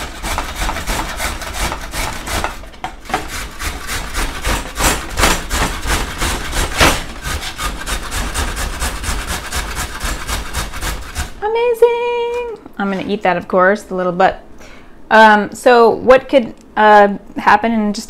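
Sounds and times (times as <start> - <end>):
carrot grated on metal grater: 0.0 - 11.5.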